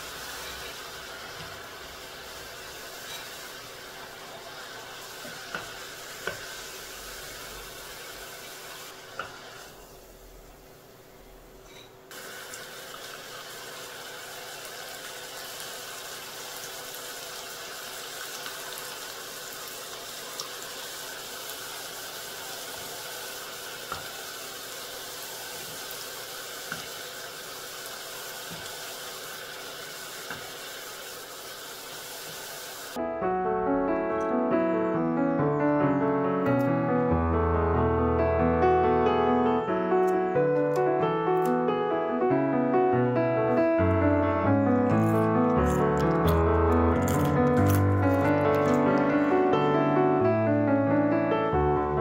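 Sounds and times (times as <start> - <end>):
dough deep-frying in hot oil: 0.0 - 10.6, 11.6 - 33.0
piano music: 33.0 - 52.0.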